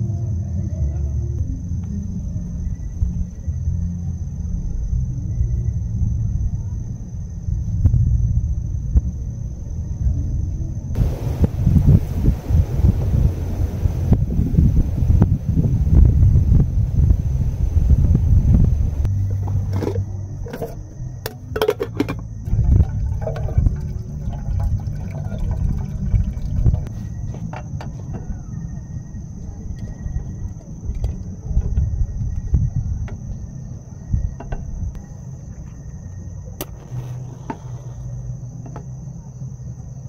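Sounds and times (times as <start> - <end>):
low rumble: 0.0 - 40.0
cookware clicking and knocking: 19.8 - 22.2.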